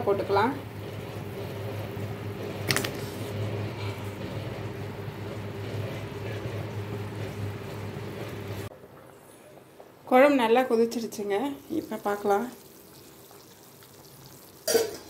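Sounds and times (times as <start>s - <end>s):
low mechanical hum: 0.0s - 15.0s
metallic clink in pan: 14.7s - 15.0s.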